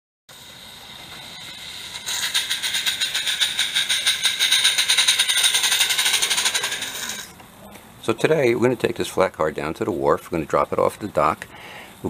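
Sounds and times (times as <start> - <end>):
steam hiss: 0.3 - 5.2
steam locomotive chuffing: 0.3 - 7.3.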